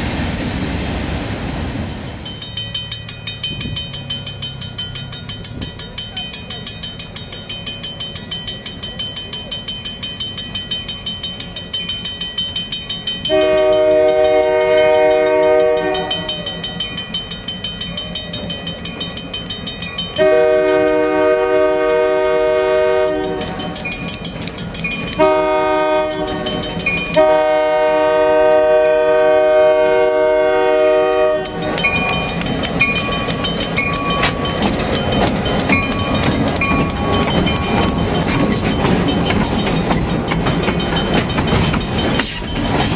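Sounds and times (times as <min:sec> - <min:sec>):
freight cars rumbling and clacking: 0:00.0 - 0:30.4, 0:31.1 - 0:42.9
railroad crossing bell ringing: 0:01.6 - 0:42.9
locomotive air horn: 0:13.3 - 0:16.3, 0:20.2 - 0:23.4, 0:25.2 - 0:26.3, 0:27.2 - 0:31.6.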